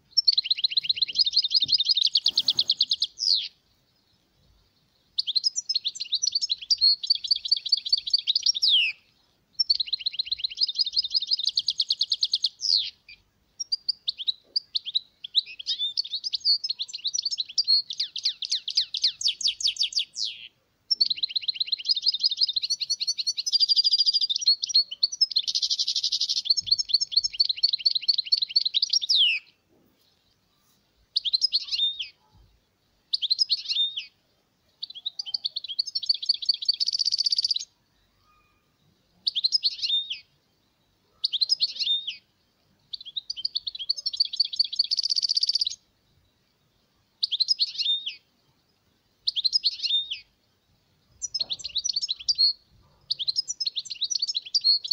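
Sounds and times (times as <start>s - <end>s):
finch twittering song: 0.0s - 54.9s.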